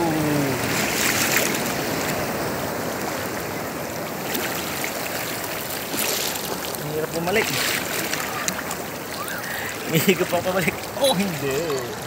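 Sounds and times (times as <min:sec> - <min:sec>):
seawater sloshing and lapping: 0:00.6 - 0:02.2, 0:04.1 - 0:12.0.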